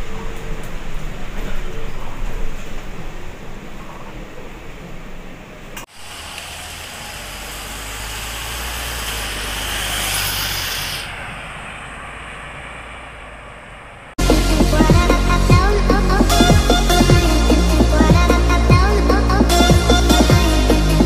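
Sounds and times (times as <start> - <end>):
bus engine humming: 0.0 - 19.6
tyres hissing on wet road: 5.9 - 12.8.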